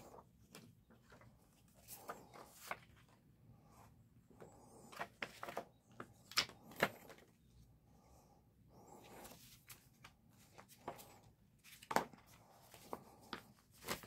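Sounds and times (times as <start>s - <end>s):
pages rustling: 0.0s - 7.4s, 8.8s - 14.0s.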